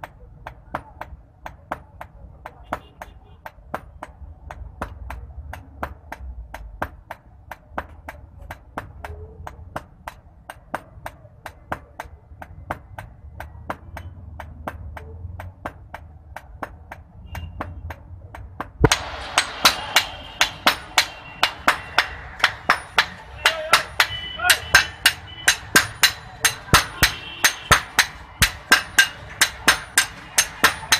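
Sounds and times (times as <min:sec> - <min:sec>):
hammers striking iron on anvil: 0:18.6 - 0:30.9.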